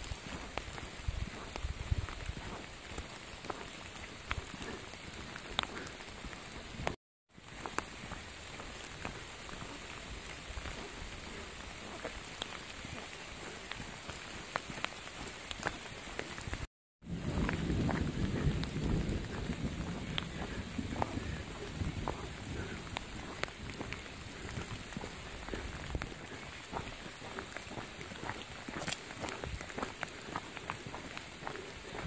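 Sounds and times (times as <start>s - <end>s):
footsteps on wet leafy trail: 0.0s - 32.0s
steady rain on leaf litter: 0.0s - 32.0s.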